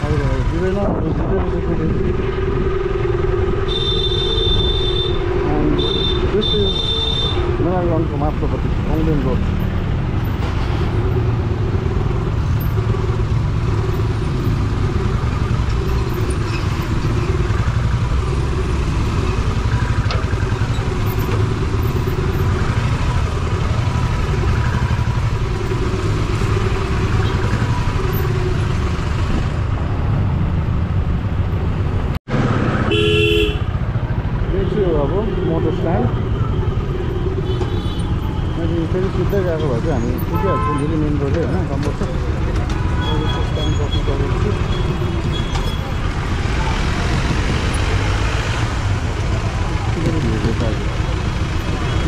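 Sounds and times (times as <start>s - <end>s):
vehicle horn: 3.7s - 7.5s, 32.9s - 33.8s, 37.4s - 38.2s, 40.3s - 40.9s.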